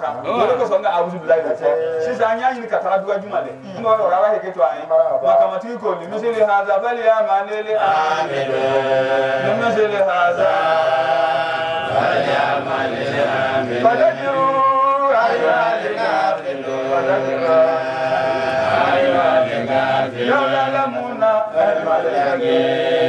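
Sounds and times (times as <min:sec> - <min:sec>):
men chanting together: 0:07.2 - 0:23.0.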